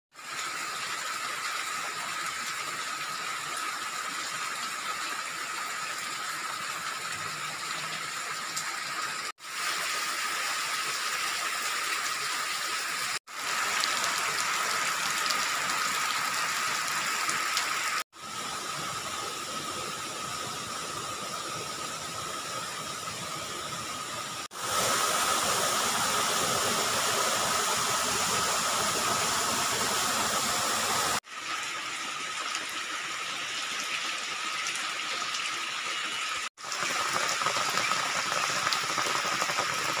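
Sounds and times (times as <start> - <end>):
rain on leaves and ground: 0.1 - 23.8, 24.5 - 40.0
stream splashing over rocks: 36.6 - 40.0.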